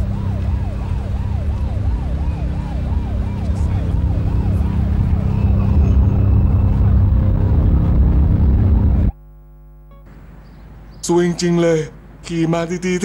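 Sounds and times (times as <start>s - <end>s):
police siren yelping: 0.0s - 9.1s
deep steady rumble: 0.0s - 9.2s.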